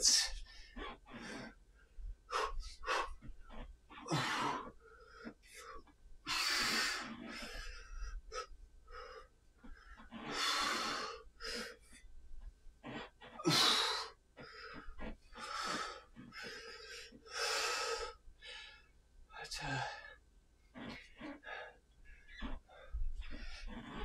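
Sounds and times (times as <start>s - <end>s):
man breathing hard: 4.0s - 11.8s, 13.4s - 18.9s.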